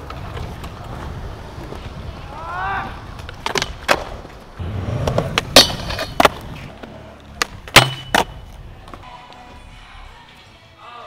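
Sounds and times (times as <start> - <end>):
skateboard wheels rolling: 0.0 - 10.1
skateboard clacks: 3.0 - 9.0.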